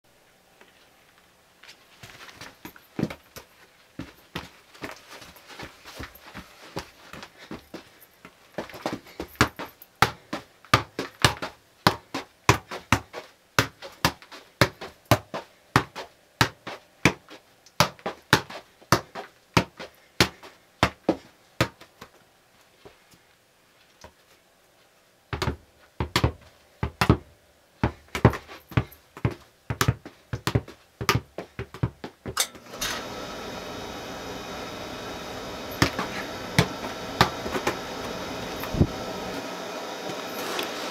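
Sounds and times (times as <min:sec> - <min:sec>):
steady machine hum: 0:32.4 - 0:40.9
soccer ball kicked off foot: 0:35.7 - 0:39.4.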